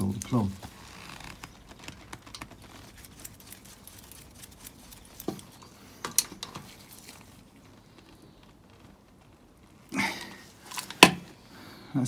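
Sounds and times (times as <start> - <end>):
glove rustling: 0.0 - 11.8.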